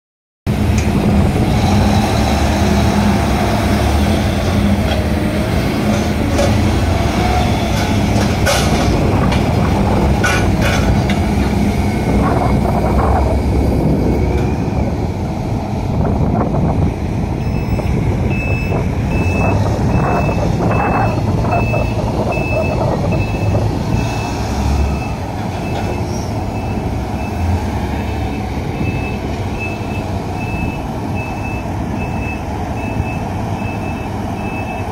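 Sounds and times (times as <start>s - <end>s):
heavy diesel engines running: 0.5s - 34.9s
reversing alarm beeping: 17.4s - 27.4s, 28.0s - 34.9s.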